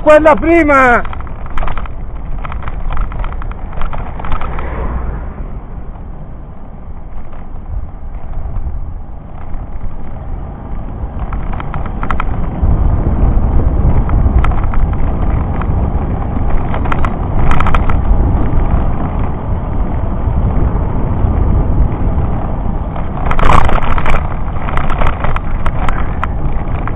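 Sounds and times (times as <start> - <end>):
bicycle road rumble: 0.0 - 26.9
wind buffeting microphone: 0.0 - 26.9
clicking rattles: 0.1 - 4.7, 11.1 - 12.6, 13.9 - 19.4, 22.9 - 26.9.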